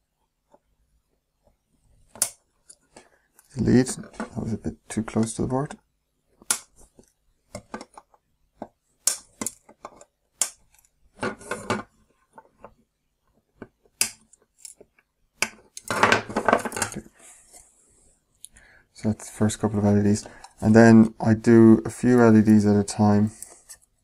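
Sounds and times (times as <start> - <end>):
clattering of tools and board: 11.2 - 11.9, 15.8 - 17.0.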